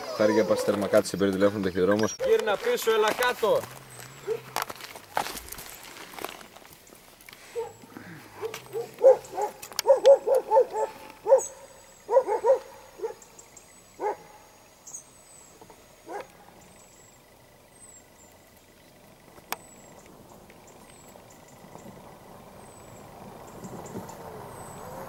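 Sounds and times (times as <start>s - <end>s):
dog barking: 0.0s - 1.0s, 4.2s - 4.6s, 7.5s - 13.3s, 14.0s - 14.4s, 16.0s - 16.4s.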